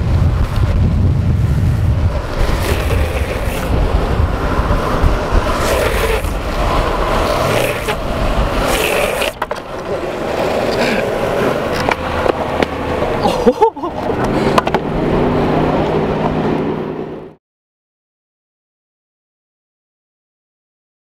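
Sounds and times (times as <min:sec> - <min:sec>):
wind buffeting microphone: 0:00.0 - 0:13.3
skateboard wheels rolling on asphalt: 0:00.0 - 0:17.4
wheels sliding scraping hiss: 0:01.4 - 0:12.0.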